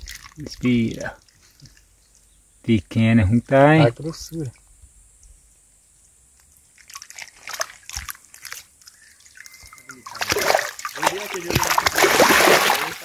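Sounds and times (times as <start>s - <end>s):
fish splashing in water: 0.0s - 0.4s, 6.8s - 13.0s
water dripping and trickling: 0.0s - 2.3s, 6.0s - 13.0s.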